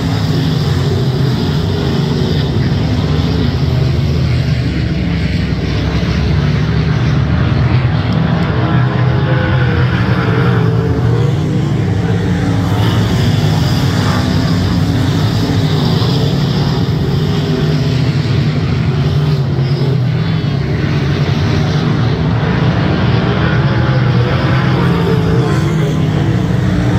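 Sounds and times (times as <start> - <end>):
race car engines roaring: 0.0 - 26.9.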